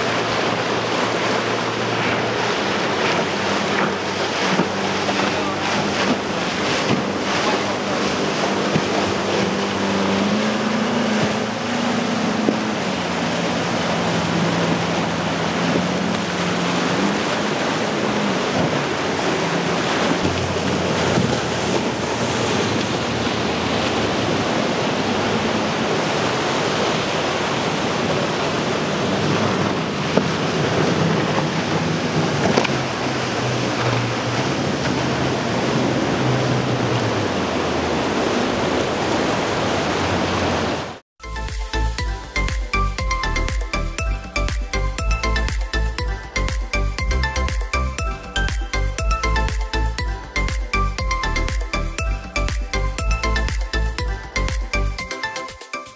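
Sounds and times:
wind buffeting microphone: 0.0 - 40.9
outboard motors droning: 0.0 - 55.4
surf wash: 0.0 - 55.9.

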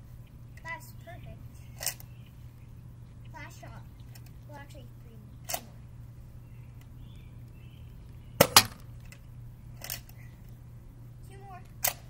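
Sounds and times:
foam balls striking: 8.4 - 8.8.

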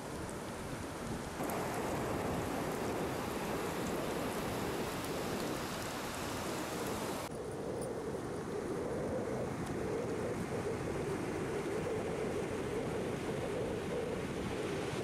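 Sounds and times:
wind on microphone: 0.0 - 15.0
surf breaking on shore: 1.1 - 7.3.

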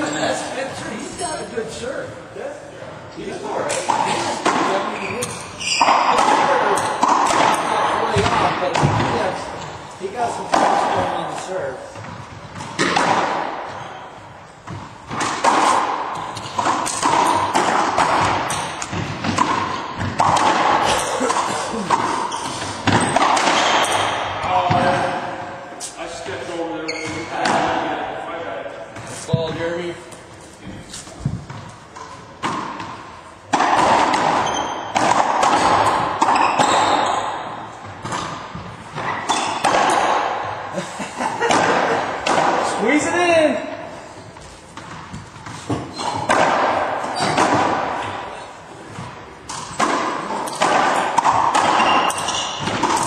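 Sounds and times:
ball cracking off racquets and walls: 3.6 - 14.0, 14.6 - 25.2, 31.2 - 40.6, 44.7 - 53.0.

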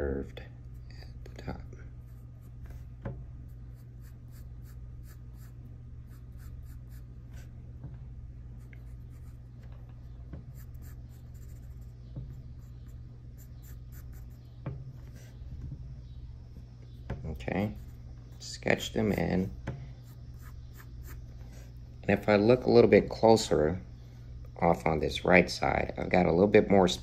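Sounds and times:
low hum: 0.0 - 27.0
pencil scratching on paper: 3.5 - 7.5, 8.6 - 9.5, 10.4 - 14.4, 20.0 - 21.8.

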